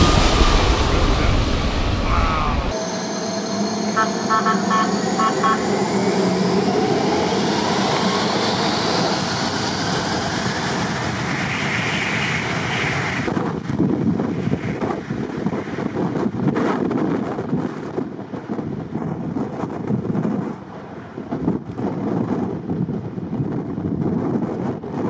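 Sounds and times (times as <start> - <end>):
wind on microphone: 0.0 - 2.8, 5.0 - 25.0
jet engines whining: 0.0 - 13.6
short high beeps: 3.9 - 6.0.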